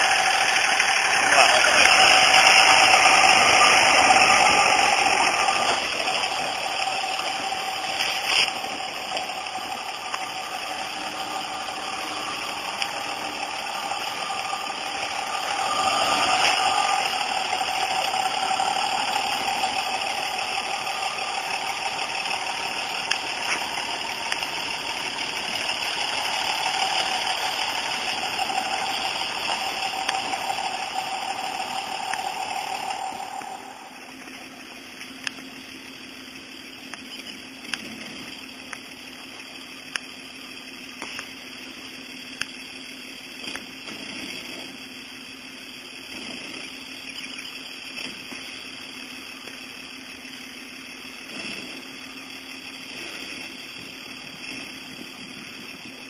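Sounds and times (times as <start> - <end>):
pickup truck engine driving: 0.0 - 56.0.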